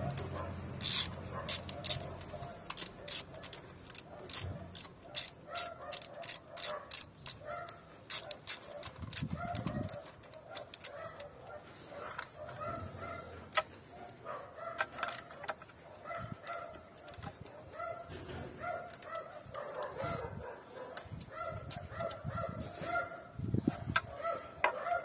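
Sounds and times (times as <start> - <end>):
socket ratchet clicking: 0.0 - 11.4, 14.7 - 15.8.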